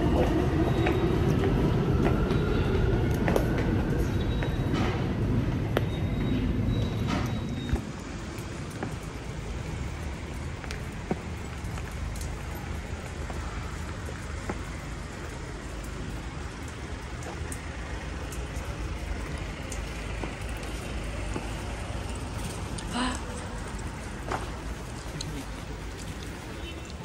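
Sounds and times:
road traffic hum: 0.0 - 27.0.

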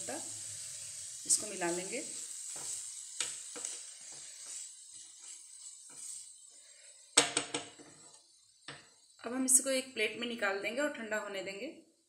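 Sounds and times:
faint hiss: 0.0 - 12.0
spatula scraping a pan: 0.3 - 9.2.

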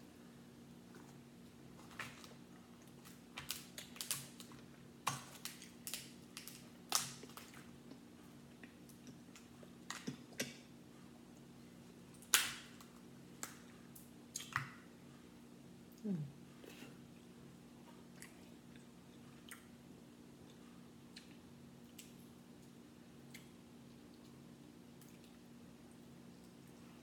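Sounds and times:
crab shells cracking: 3.0 - 7.6.

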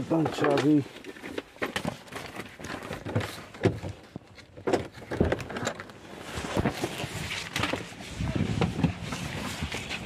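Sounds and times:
handling clicks and thumps in car: 0.0 - 10.0.

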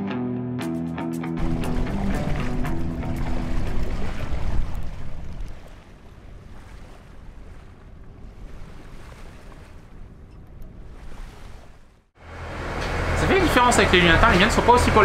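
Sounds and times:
wind rumbling on microphone: 1.4 - 12.1
water washing along hull: 1.4 - 15.0.

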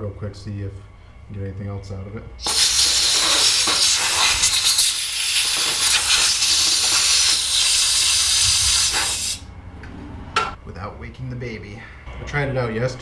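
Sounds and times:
compressed air blow gun hissing: 2.4 - 9.5.

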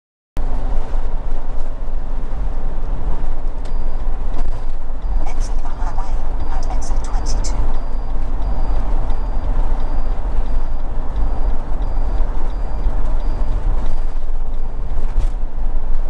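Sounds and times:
road and engine rumble: 0.4 - 16.0
turn indicator ticking: 3.6 - 15.1.

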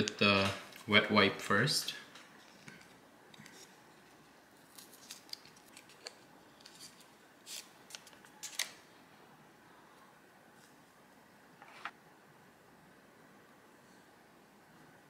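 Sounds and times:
wet wipe packet crinkling: 4.6 - 8.8.

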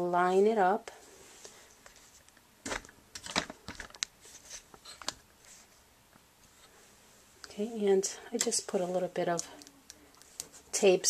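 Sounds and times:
faint paper rustles: 1.3 - 5.8.

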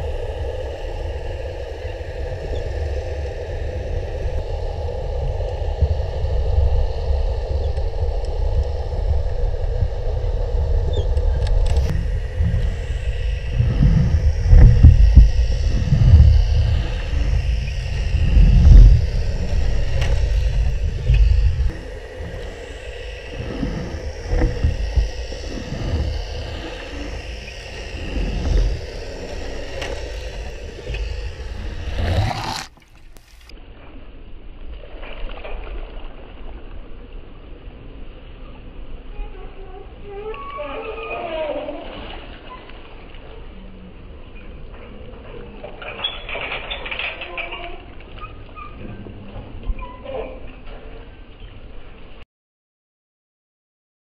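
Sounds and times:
underwater churning water rumble: 0.0 - 33.5
faint steady hum: 0.0 - 34.9.

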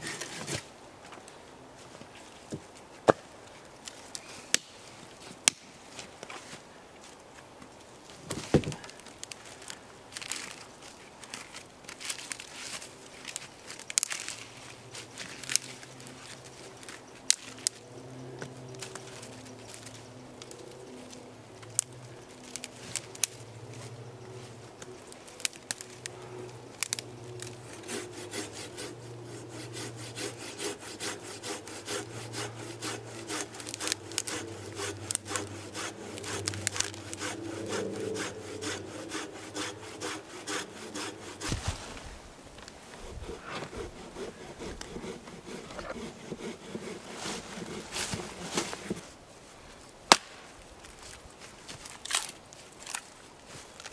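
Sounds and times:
wood being sawn by hand: 26.8 - 42.0, 42.9 - 49.0.

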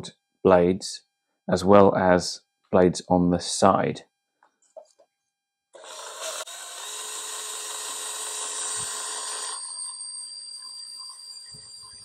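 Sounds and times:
electric drill motor whine: 5.8 - 12.0.

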